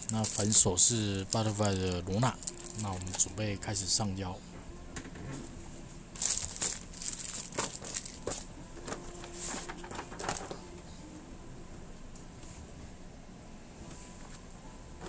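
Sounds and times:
plastic wrap crinkling: 0:00.0 - 0:03.6, 0:06.1 - 0:08.5.

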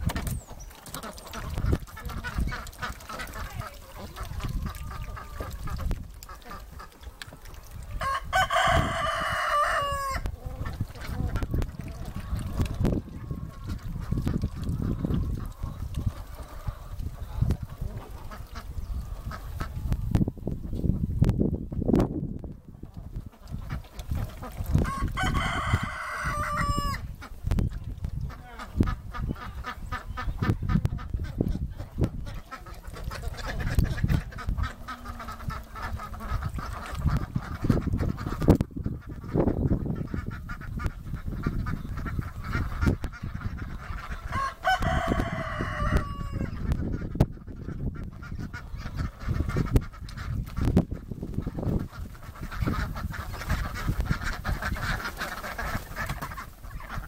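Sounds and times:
ducks quacking: 0:00.0 - 0:21.1, 0:22.8 - 0:57.0
rooster crowing: 0:08.0 - 0:10.3, 0:24.9 - 0:27.0, 0:44.3 - 0:46.6.

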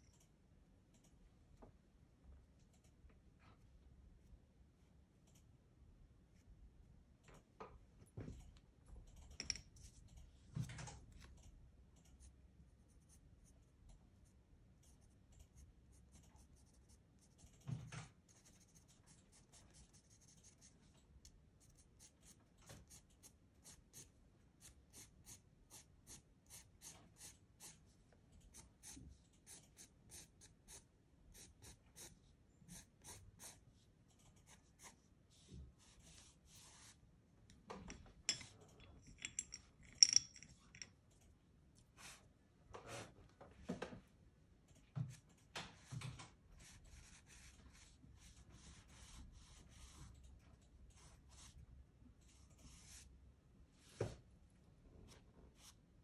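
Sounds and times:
pencil scratching on paper: 0:14.9 - 0:17.4, 0:18.2 - 0:20.8, 0:21.6 - 0:27.8, 0:28.5 - 0:33.8, 0:46.6 - 0:50.1, 0:52.3 - 0:53.1.

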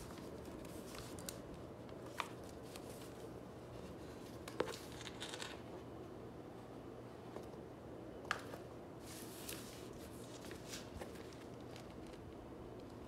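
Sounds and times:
paper and covers rustling: 0:00.0 - 0:05.4, 0:09.0 - 0:12.3.

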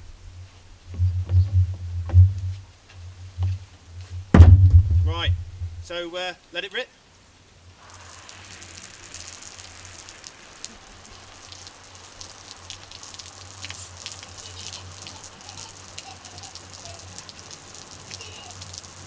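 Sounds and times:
low steady hum: 0:00.0 - 0:06.1
water drops ticking: 0:00.9 - 0:05.9
hose water spraying: 0:07.8 - 0:19.0.

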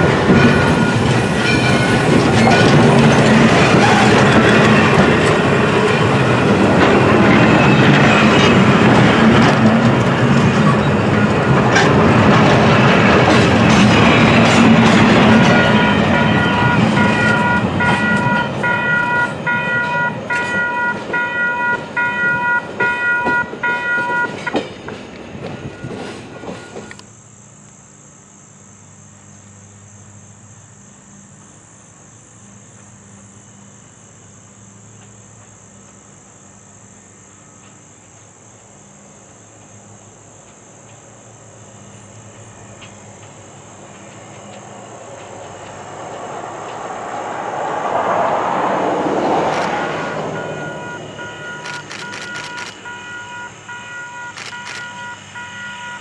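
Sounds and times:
crossing warning bell ringing: 0:00.0 - 0:27.0, 0:49.2 - 0:56.0
rushing noise: 0:00.0 - 0:27.0, 0:43.6 - 0:56.0
distant diesel train: 0:00.0 - 0:56.0.

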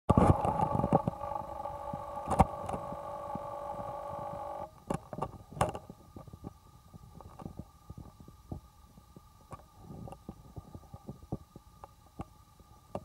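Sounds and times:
camcorder zoom motor whining: 0:00.1 - 0:04.7.

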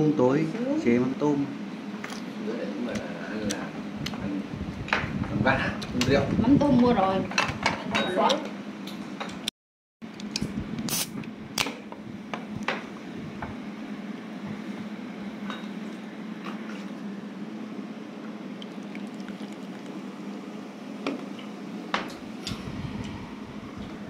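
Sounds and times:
beer pouring and fizzing: 0:18.5 - 0:20.6.

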